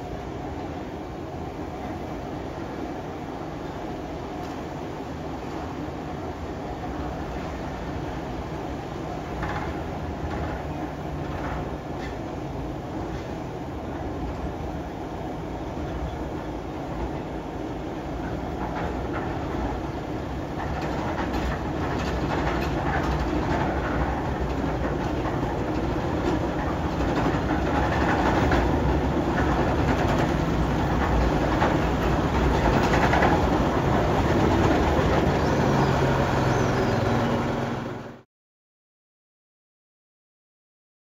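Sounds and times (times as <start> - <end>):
locomotive engine humming: 0.0 - 38.2
wheel and rail clicks and clanks: 8.9 - 12.4, 18.0 - 38.1.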